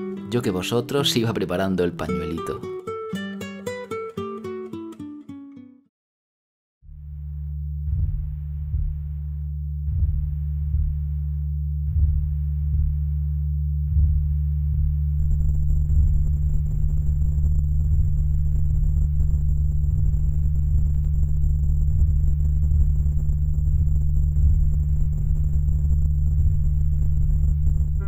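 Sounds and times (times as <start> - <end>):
constant low hum: 6.9 - 28.0.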